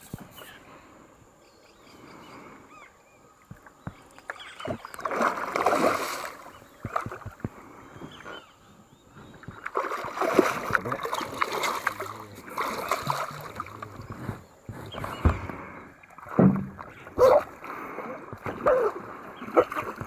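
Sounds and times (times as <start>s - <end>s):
fish thrashing and splashing: 4.7s - 7.4s, 9.5s - 14.1s.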